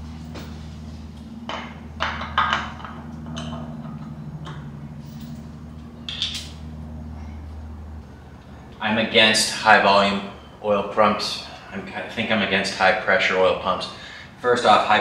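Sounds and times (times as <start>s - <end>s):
steady low hum: 0.0s - 15.0s
metal clinks and knocks: 1.5s - 6.6s.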